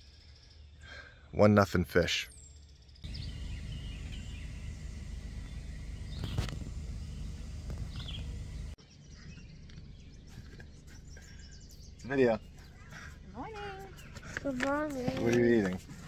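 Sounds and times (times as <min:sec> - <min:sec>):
birds chirping: 0:02.3 - 0:16.0
steady low rumble: 0:03.0 - 0:08.8.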